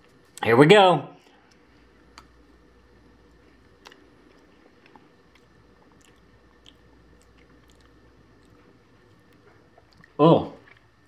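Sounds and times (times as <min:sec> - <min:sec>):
mouth smacks and clicks: 0:03.7 - 0:10.9.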